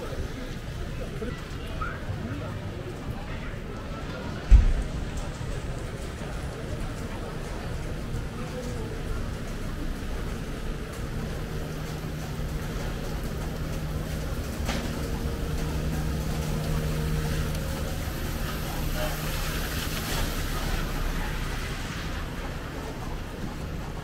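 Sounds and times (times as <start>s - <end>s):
traffic noise: 0.0s - 24.0s
vehicle engine humming: 8.9s - 24.0s.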